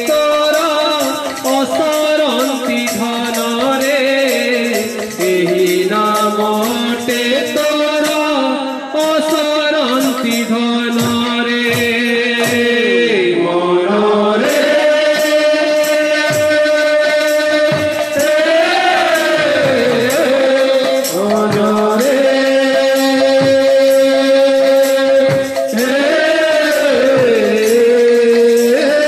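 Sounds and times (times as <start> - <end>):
voices singing held notes: 0.0 - 29.0
drum strokes: 14.4 - 29.0.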